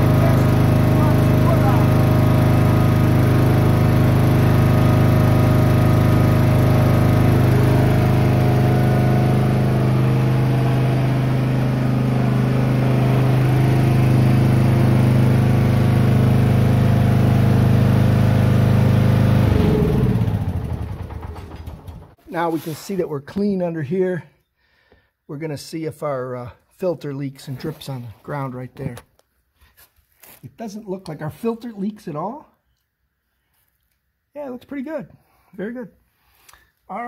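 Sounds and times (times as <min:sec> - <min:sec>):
lawn tractor engine running: 0:00.0 - 0:22.2.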